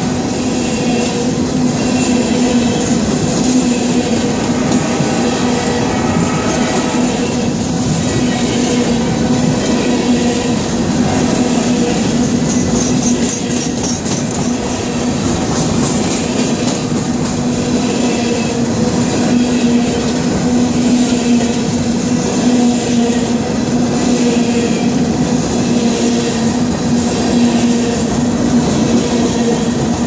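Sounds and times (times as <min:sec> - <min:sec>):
train wheels rumbling on rails: 0:00.0 - 0:30.0
wheels clacking: 0:06.0 - 0:17.5.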